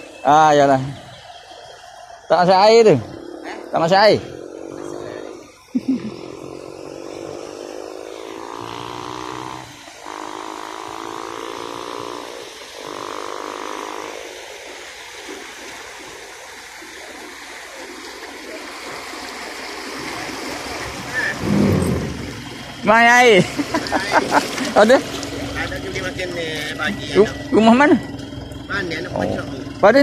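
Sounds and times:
frogs calling in chorus: 0.0 - 14.4
truck wading through flood water: 0.0 - 30.0.

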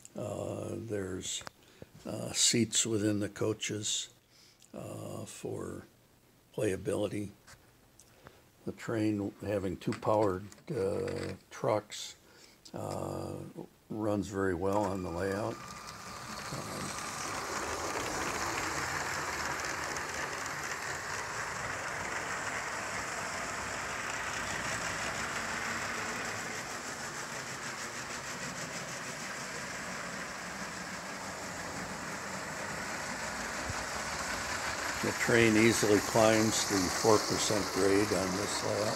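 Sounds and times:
toy train motor whirring: 10.9 - 11.4, 14.7 - 38.9
wheels clicking over track: 14.7 - 38.9.

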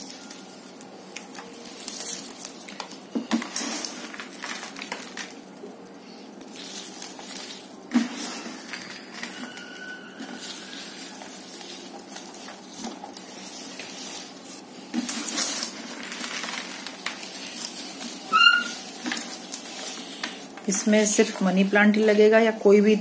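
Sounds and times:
soil and leaves rustling: 0.0 - 23.0
high chirp: 18.3 - 18.8.

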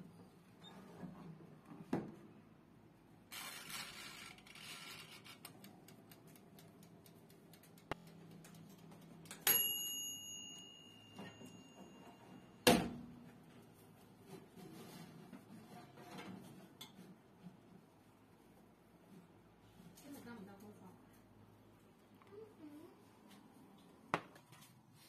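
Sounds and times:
timer bell ringing: 9.4 - 12.7.

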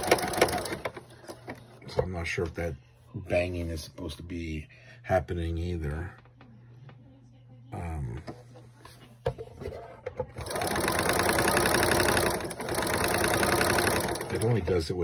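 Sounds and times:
sewing machine running: 0.0 - 1.4, 10.4 - 14.7.

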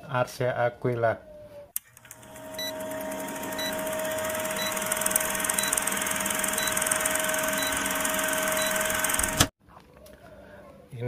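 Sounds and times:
film projector whirring and rattling: 1.8 - 9.5.

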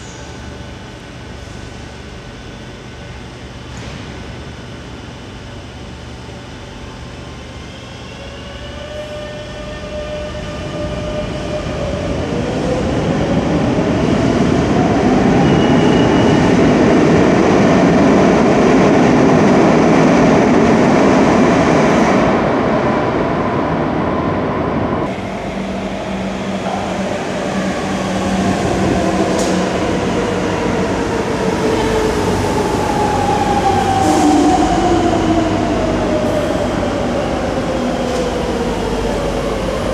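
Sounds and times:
train running past: 8.0 - 39.9.

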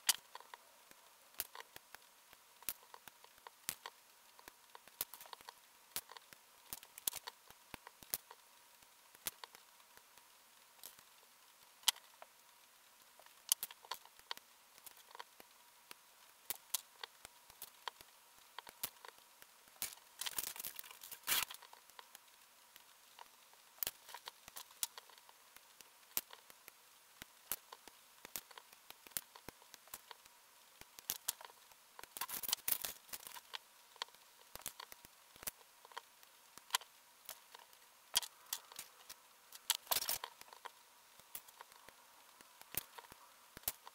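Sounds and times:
nippers snipping plastic: 19.8 - 22.1
rustling handling noise: 19.8 - 22.2.

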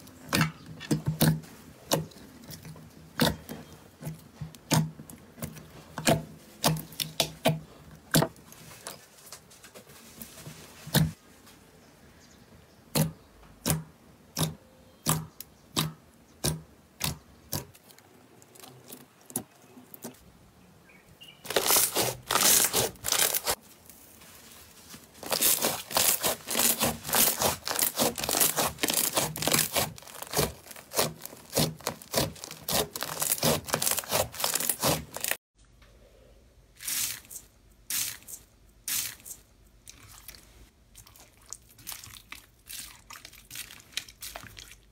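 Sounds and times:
slime popping and crackling: 25.2 - 35.4.

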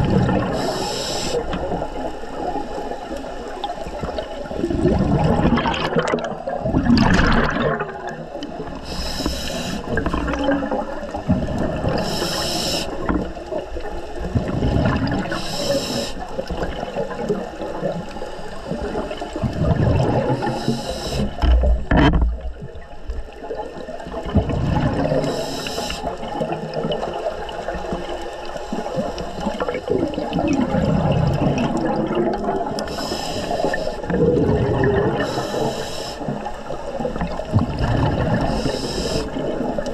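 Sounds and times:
exhaled air bubbling underwater: 0.0 - 39.9
regulator inhale hiss: 0.5 - 1.7, 8.7 - 10.0, 11.9 - 13.1, 15.2 - 16.4, 20.3 - 21.5, 25.1 - 26.2, 32.8 - 34.1, 35.2 - 36.5, 38.4 - 39.5.

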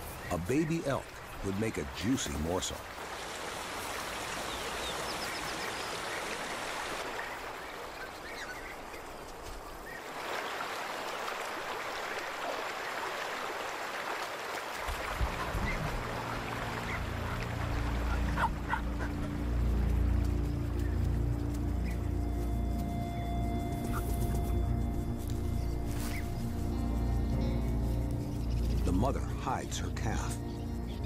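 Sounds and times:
stream running over rocks: 0.0 - 22.3
low background music: 15.2 - 31.0.

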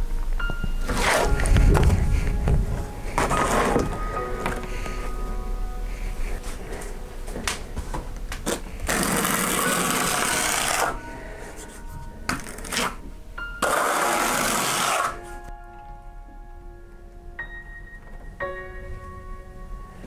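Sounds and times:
trowel scraping plaster: 0.9 - 1.5, 3.2 - 3.9.

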